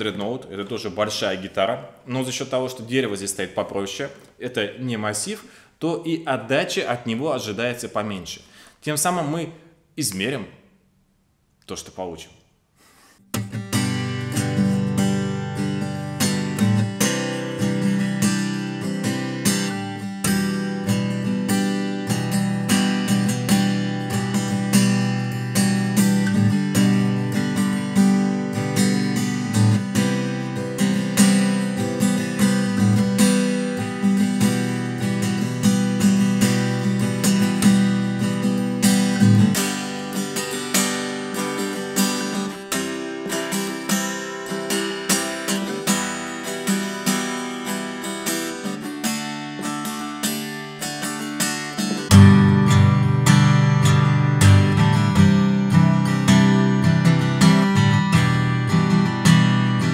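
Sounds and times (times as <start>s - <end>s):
acoustic guitar strummed in chords: 13.2s - 59.9s.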